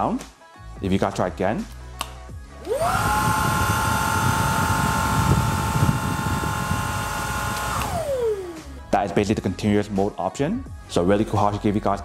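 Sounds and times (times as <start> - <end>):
vacuum motor whine: 2.6 - 8.9.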